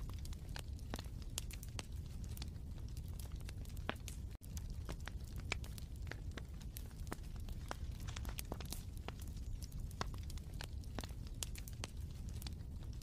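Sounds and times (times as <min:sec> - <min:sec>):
wood fire crackling: 0:00.0 - 0:13.0.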